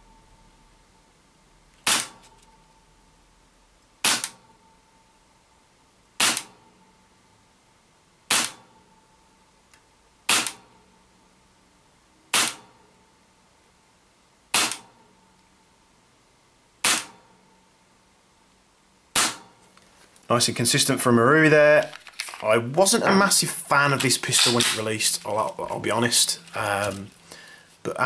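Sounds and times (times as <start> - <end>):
airsoft pistol shots: 1.8 - 2.2, 4.0 - 4.4, 6.2 - 6.5, 8.3 - 8.6, 10.3 - 10.6, 12.3 - 12.6, 14.5 - 14.9, 16.8 - 17.2, 19.1 - 19.5.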